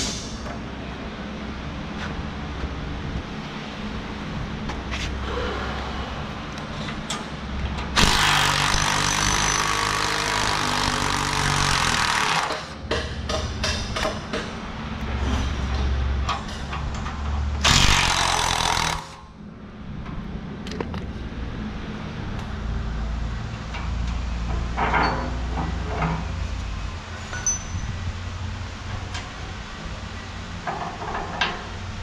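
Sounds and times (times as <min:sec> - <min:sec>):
handheld power tool running: 0:08.0 - 0:12.8, 0:17.6 - 0:19.2.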